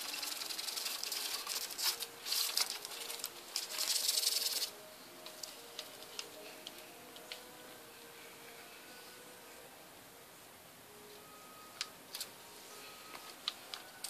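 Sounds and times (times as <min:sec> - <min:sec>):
hand rustling newspaper: 0:00.0 - 0:07.5.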